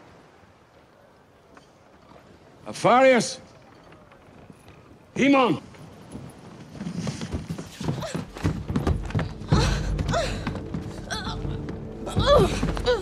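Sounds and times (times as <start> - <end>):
clattering and thuds: 6.7 - 13.0.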